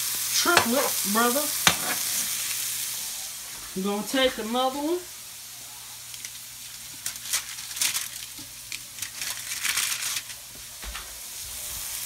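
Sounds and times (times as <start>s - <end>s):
burger patties sizzling: 0.0s - 12.0s
wrapping crinkling: 6.0s - 10.8s.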